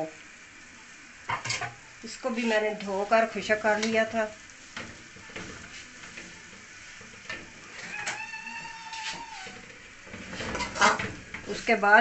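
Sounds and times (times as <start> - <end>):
faint sizzle: 0.0 - 12.0
steel ladle scraping pan: 1.3 - 2.6, 3.7 - 11.8.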